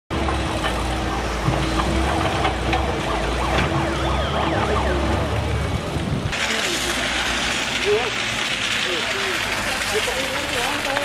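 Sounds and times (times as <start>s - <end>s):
vehicle engines rumbling: 0.1s - 11.0s
high wailing siren tone: 0.2s - 5.9s.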